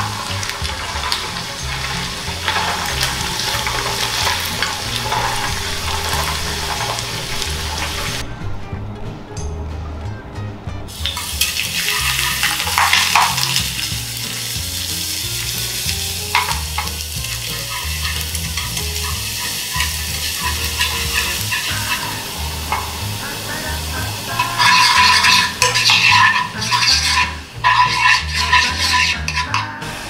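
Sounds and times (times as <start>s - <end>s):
garlic sizzling in oil: 0.0s - 8.2s, 10.9s - 30.0s
utensil clinking in pan: 11.0s - 14.0s, 15.9s - 23.0s, 24.3s - 29.7s.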